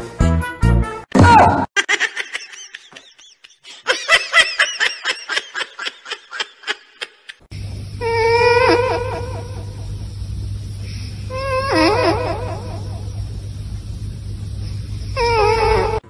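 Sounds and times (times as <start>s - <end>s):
high-pitched giggling laughter: 1.8s - 7.5s.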